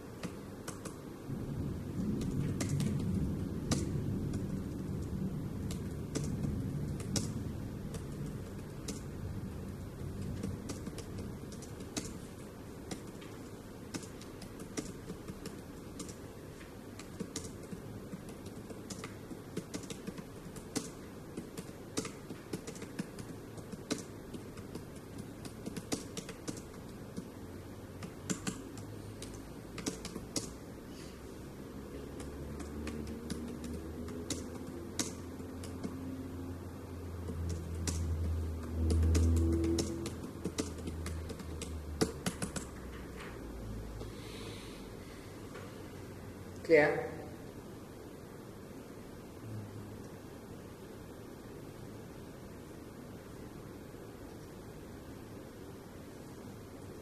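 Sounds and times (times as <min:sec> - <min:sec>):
low steady hum: 0:00.0 - 0:57.0
keyboard key clicks: 0:00.2 - 0:01.0, 0:05.6 - 0:09.2, 0:28.0 - 0:30.6, 0:32.1 - 0:36.0, 0:38.8 - 0:42.8.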